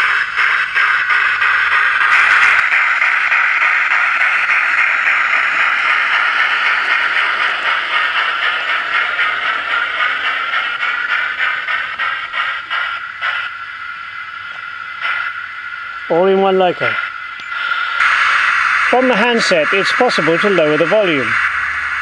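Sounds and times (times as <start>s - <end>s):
steam locomotive chuffing: 0.0s - 22.0s.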